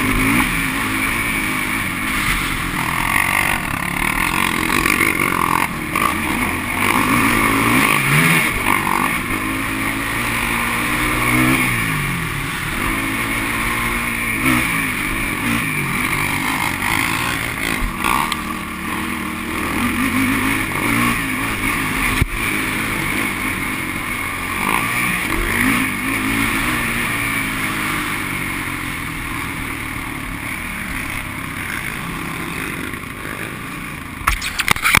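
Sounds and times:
quad engine revving: 0:00.0 - 0:35.0.

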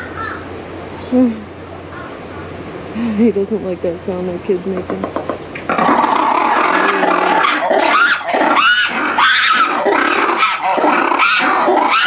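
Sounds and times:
lemur harsh shrieking calls: 0:00.0 - 0:00.5, 0:05.7 - 0:12.0.

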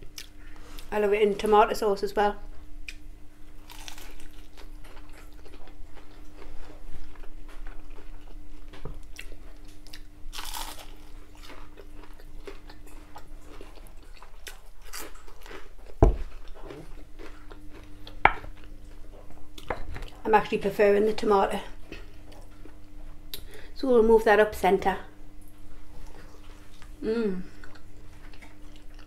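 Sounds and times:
crunching bites of fried food: 0:03.6 - 0:06.4, 0:09.2 - 0:12.8, 0:13.4 - 0:16.0
chewing: 0:03.7 - 0:20.2, 0:27.6 - 0:29.0.

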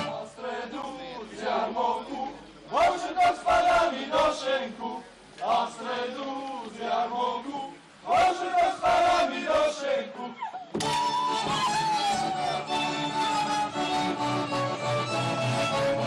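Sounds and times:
men chanting together: 0:00.0 - 0:10.4.

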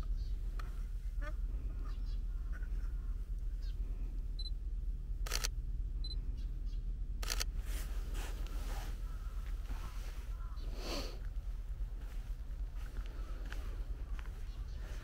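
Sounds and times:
low steady rumble: 0:00.0 - 0:15.0
camera focus beep: 0:05.2 - 0:06.2, 0:07.2 - 0:07.5.

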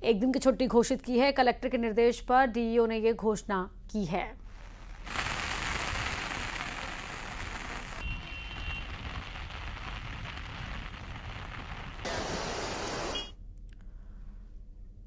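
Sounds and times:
rain falling: 0:05.0 - 0:13.1.

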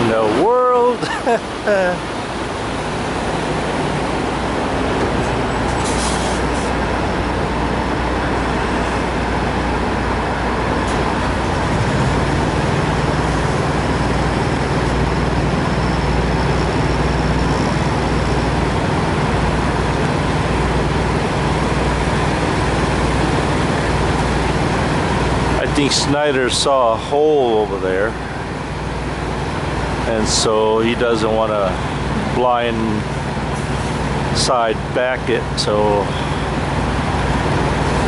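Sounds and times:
deep truck engine tone: 0:00.0 - 0:38.0
diesel trucks droning: 0:00.0 - 0:38.0
short air hiss: 0:05.8 - 0:06.7.

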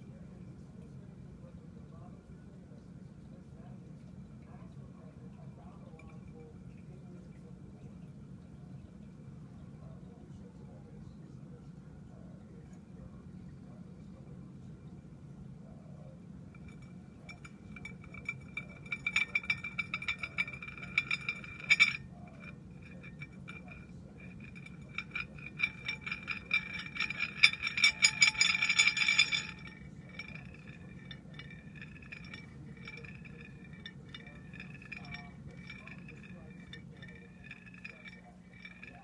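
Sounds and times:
glass top ringing while rolling: 0:05.0 - 0:06.8, 0:16.5 - 0:39.0.

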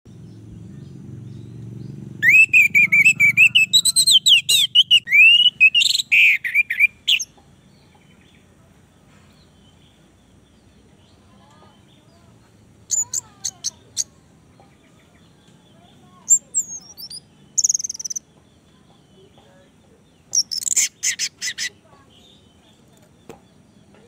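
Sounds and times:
thrush singing high whistled notes: 0:02.2 - 0:07.0.

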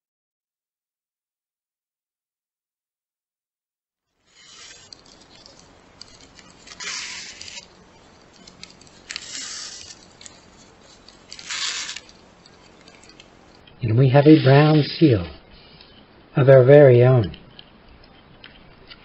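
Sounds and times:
shoelace drawn through card: 0:04.3 - 0:13.2
card and lace rustling: 0:04.3 - 0:13.6.

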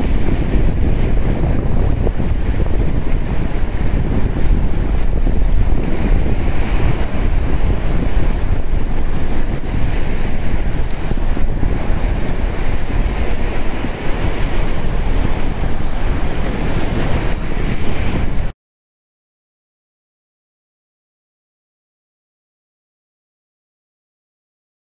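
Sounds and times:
strong wind buffeting microphone: 0:00.0 - 0:18.5.

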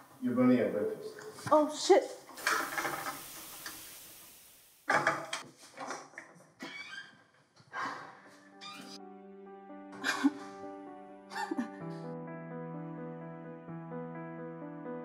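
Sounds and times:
food sizzling in a frying pan: 0:02.3 - 0:05.2.

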